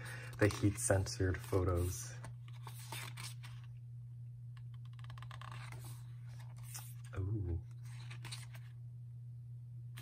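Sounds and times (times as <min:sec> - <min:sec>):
page turning rustles: 0:00.3 - 0:03.7, 0:04.7 - 0:08.7.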